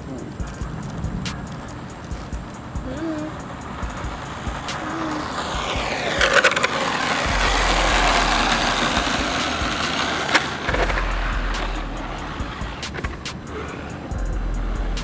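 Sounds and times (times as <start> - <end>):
tyres rushing on asphalt: 0.0 - 15.0
toy truck motor whirring: 4.7 - 14.2.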